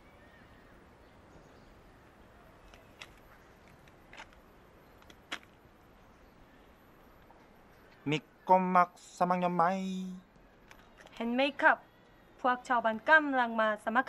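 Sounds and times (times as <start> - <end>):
faint background hiss: 0.0 - 14.0.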